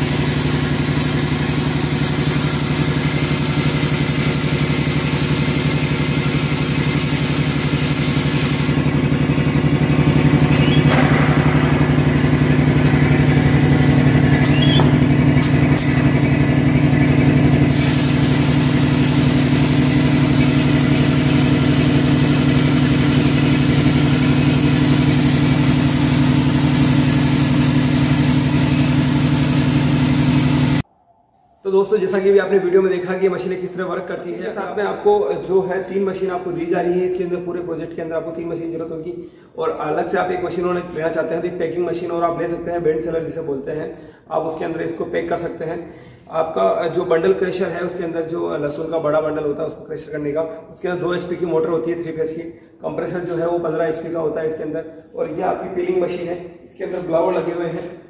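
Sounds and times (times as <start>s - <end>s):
machine mechanical drone: 8.6s - 31.6s.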